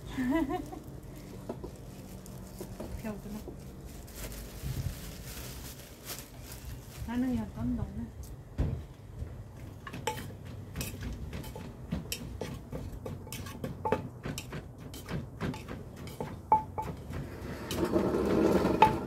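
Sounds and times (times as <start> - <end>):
pestle pounding in mortar: 9.8 - 19.0.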